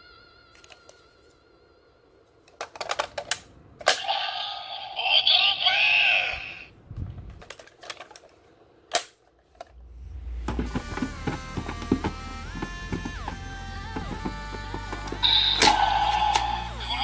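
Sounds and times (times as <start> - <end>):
plastic toy parts clicking: 0.5 - 1.0, 2.4 - 4.1, 7.3 - 9.7, 15.0 - 17.0
toy electronic voice and effects: 4.0 - 6.7, 15.2 - 17.0
toy electronic music: 10.6 - 17.0.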